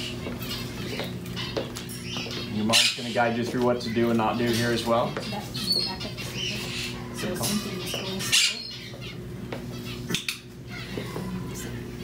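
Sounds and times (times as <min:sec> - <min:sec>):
parrots squawking and chirping: 0:00.0 - 0:12.0
low murmured talk: 0:10.6 - 0:12.0.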